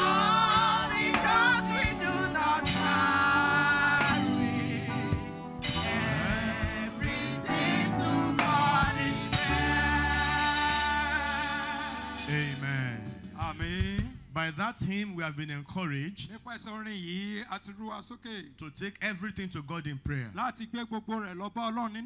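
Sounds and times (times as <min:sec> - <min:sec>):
choir singing gospel: 0:00.0 - 0:13.3
keyboard accompaniment: 0:00.0 - 0:14.0.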